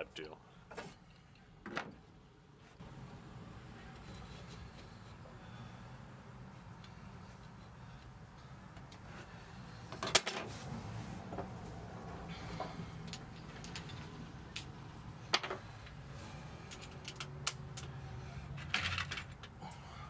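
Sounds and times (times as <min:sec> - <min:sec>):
tools and wood clicking and knocking: 0:12.5 - 0:14.7, 0:16.6 - 0:19.6.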